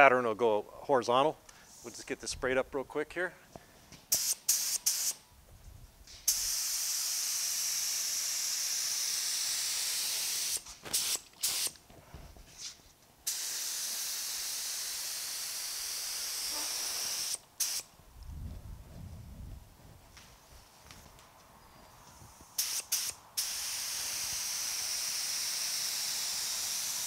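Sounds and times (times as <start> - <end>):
spray gun hissing: 4.1 - 5.2, 6.2 - 11.7, 13.3 - 17.9, 22.6 - 27.0
spray gun trigger blips: 4.1 - 5.2, 6.1 - 11.8, 13.3 - 17.8, 22.6 - 27.0.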